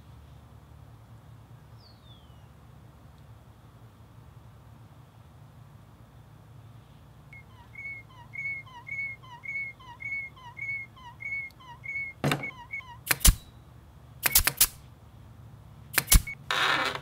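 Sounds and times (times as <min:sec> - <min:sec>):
cartoon squeaks: 0:07.4 - 0:13.5
sharp clacks: 0:13.1 - 0:13.5, 0:14.2 - 0:14.8, 0:16.0 - 0:16.4.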